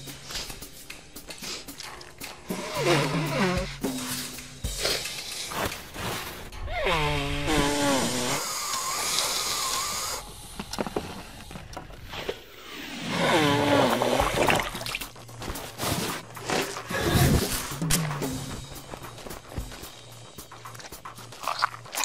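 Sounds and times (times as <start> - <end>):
buzzy nose honk: 6.7 - 8.4.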